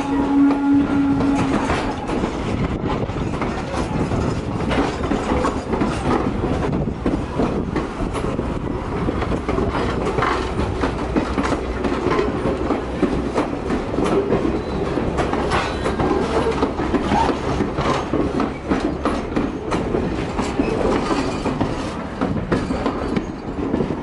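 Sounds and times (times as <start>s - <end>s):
low rumble of rolling coaches: 0.0s - 24.0s
train wheels clacking over rail joints: 0.0s - 24.0s.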